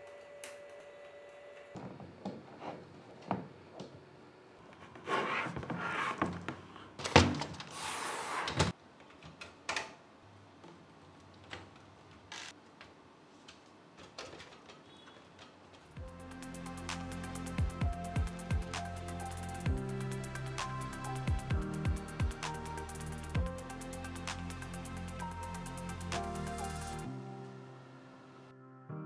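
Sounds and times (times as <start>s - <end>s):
music: 16.0s - 29.0s.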